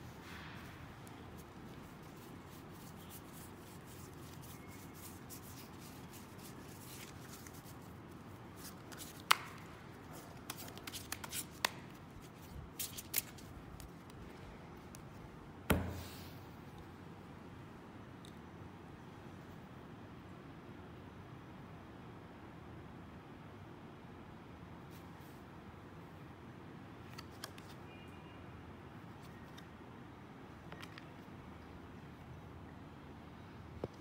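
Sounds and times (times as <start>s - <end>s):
playing cards shuffling: 1.0s - 15.1s, 27.1s - 27.8s
card snaps and clicks: 8.9s - 9.7s, 27.1s - 27.8s
deck thumping on table: 15.7s - 16.1s.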